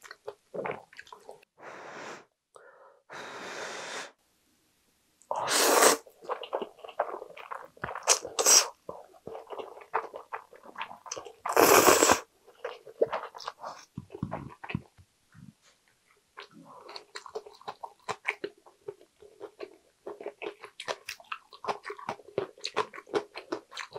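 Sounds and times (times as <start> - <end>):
noodle slurping: 5.3 - 12.2.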